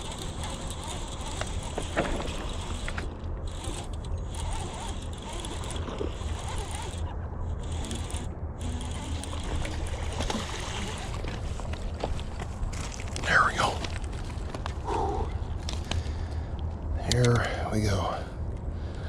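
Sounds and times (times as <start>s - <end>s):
fishing reel cranking: 0.0s - 11.7s
fish splashing: 9.3s - 12.0s.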